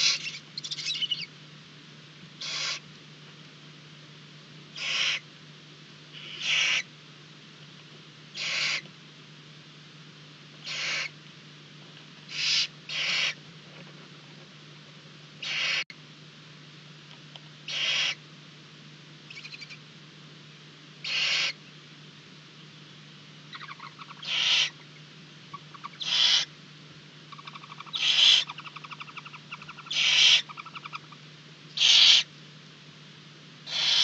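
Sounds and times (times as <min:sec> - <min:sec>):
owlets hissing begging calls: 0:00.0 - 0:01.3, 0:02.4 - 0:02.8, 0:04.8 - 0:05.2, 0:06.2 - 0:06.9, 0:08.4 - 0:08.8, 0:10.6 - 0:11.2, 0:12.3 - 0:13.4, 0:15.4 - 0:15.8, 0:17.7 - 0:18.2, 0:21.0 - 0:21.6, 0:23.5 - 0:24.8, 0:25.5 - 0:26.5, 0:27.3 - 0:32.3, 0:33.7 - 0:34.0
faint rapid chittering: 0:27.3 - 0:31.2.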